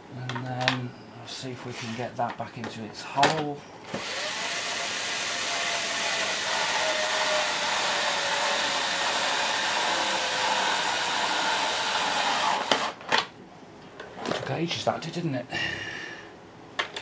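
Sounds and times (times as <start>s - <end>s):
cordless screwdriver whining: 3.9s - 13.0s.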